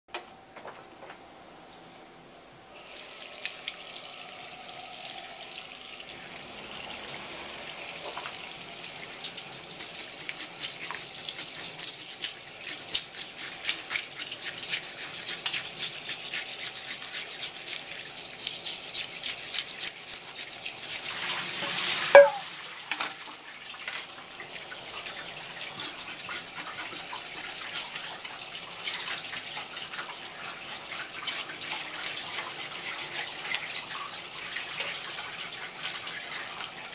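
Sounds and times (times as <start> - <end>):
tap water running onto fish: 7.9 - 18.0, 19.4 - 36.9.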